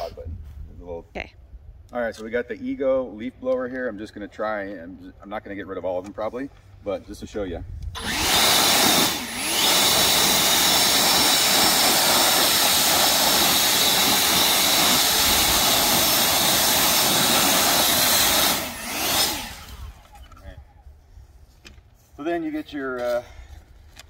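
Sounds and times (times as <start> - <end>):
leaf blower whining: 8.0 - 20.5.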